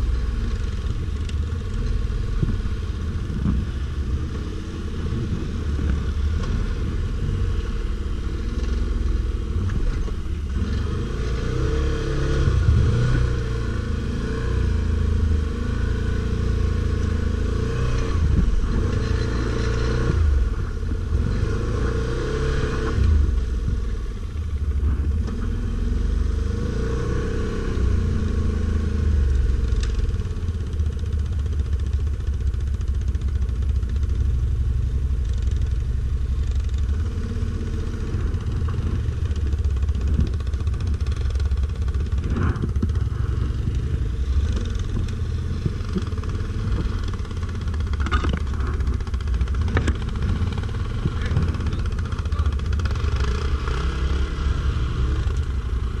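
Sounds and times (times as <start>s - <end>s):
engine revving: 3.3s - 23.5s, 36.8s - 56.0s.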